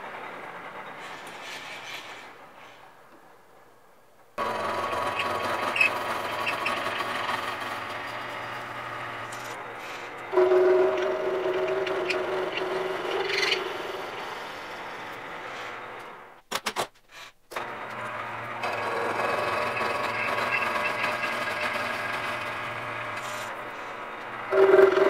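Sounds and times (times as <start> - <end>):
milling machine cutting metal: 4.4 - 15.5, 17.6 - 25.0.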